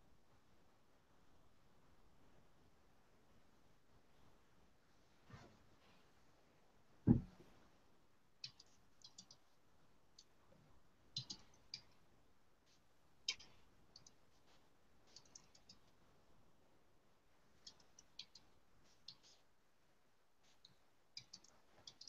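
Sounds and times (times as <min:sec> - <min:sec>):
faint irregular clicks: 0:08.4 - 0:09.5, 0:10.1 - 0:10.4, 0:11.1 - 0:12.1, 0:12.7 - 0:16.0, 0:17.6 - 0:19.5, 0:20.4 - 0:22.0.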